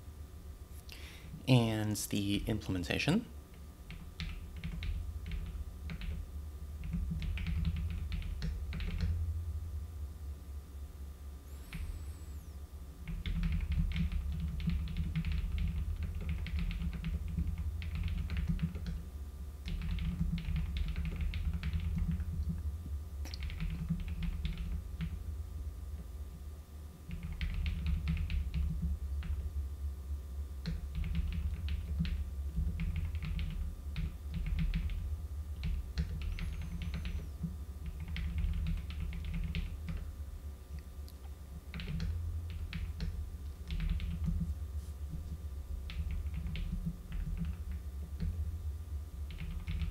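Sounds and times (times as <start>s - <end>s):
typing on a keyboard: 3.9s - 6.2s, 6.8s - 9.1s, 13.1s - 19.0s, 19.6s - 22.6s, 23.3s - 25.2s, 27.1s - 29.4s, 30.6s - 35.0s, 35.6s - 40.1s, 41.7s - 44.5s, 45.9s - 48.3s, 49.3s - 49.9s.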